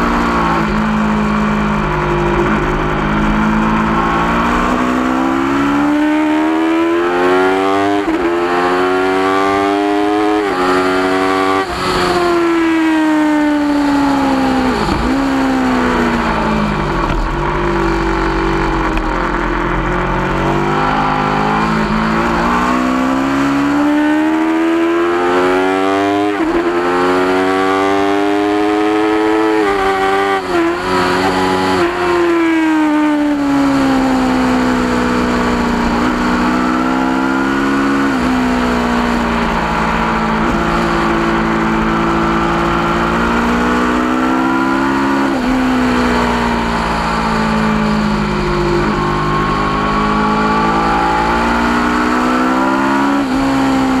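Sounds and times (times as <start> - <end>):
motorcycle engine at high revs: 0.0 - 54.0.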